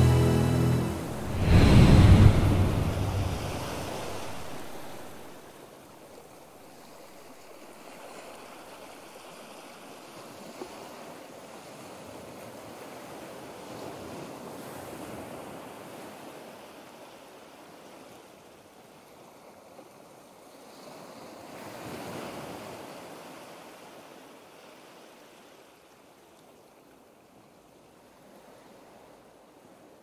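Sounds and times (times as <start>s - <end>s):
sea waves washing: 0.0s - 5.5s.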